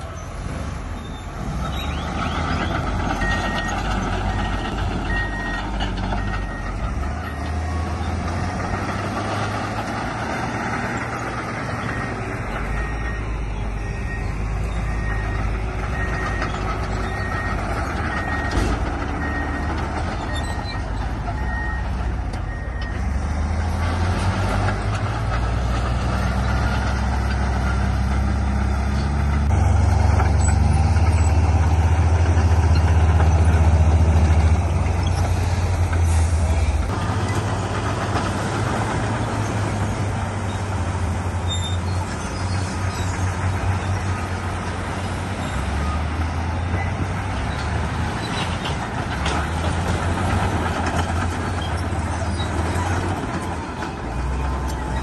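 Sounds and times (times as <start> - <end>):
heavy machine engine running: 0.0 - 55.0
reversing alarm beeps: 1.0 - 8.8, 11.6 - 23.2.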